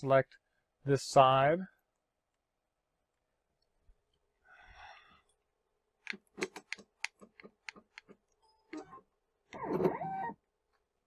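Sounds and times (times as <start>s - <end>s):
faint short breath: 4.4s - 5.3s.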